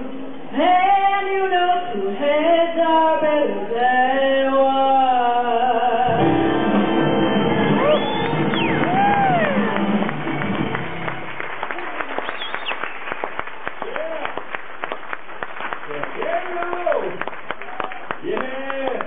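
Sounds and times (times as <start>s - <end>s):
woman singing: 0.5s - 6.3s
audience cheering and whistling: 6.6s - 14.4s.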